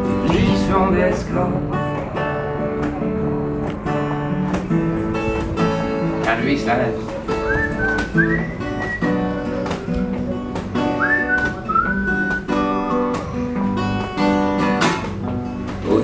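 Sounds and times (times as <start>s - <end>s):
acoustic guitar strumming: 0.0s - 16.0s
person whistling a melody: 7.3s - 13.2s.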